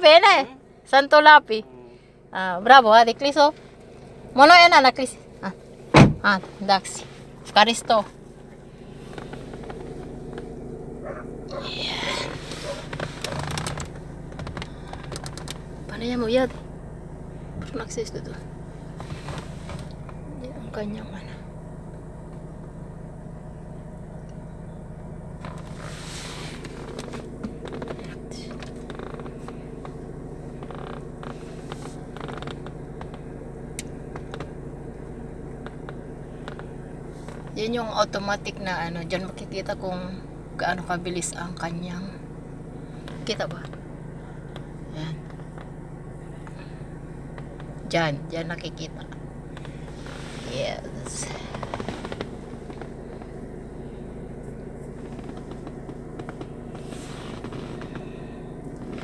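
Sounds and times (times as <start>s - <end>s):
rotary engine idling: 0.0s - 59.0s
steady low hum: 0.0s - 59.0s
light clicks and creaks: 12.2s - 16.6s, 26.5s - 34.6s.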